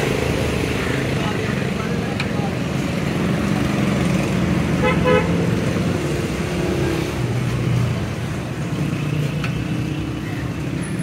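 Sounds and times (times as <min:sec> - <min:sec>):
motor traffic: 0:00.0 - 0:11.0
vehicle horn toots: 0:04.8 - 0:05.4.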